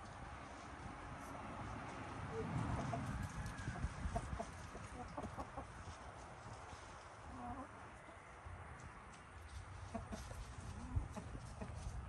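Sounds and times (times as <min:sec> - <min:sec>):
chickens clucking: 0:02.3 - 0:06.1, 0:07.2 - 0:08.2, 0:09.5 - 0:12.0.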